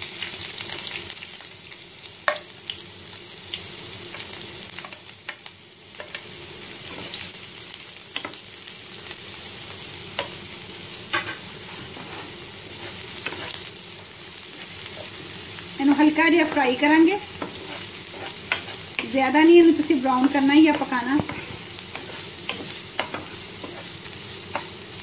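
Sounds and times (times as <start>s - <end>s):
onions sizzling in a frying pan: 0.0s - 25.0s
wooden spatula scraping a pan: 11.1s - 13.7s, 15.8s - 24.8s.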